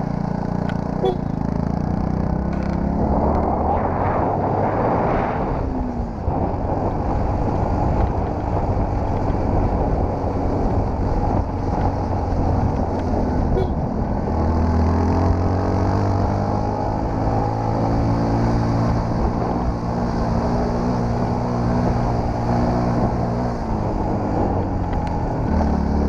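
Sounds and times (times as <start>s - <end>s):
motorcycle engine running: 0.0s - 3.2s, 6.0s - 18.4s
wind noise on microphone: 2.6s - 26.0s.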